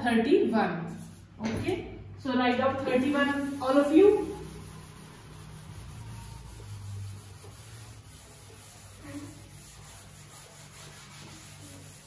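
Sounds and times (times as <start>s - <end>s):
duster rubbing on chalkboard: 0.9s - 1.4s, 2.8s - 12.0s.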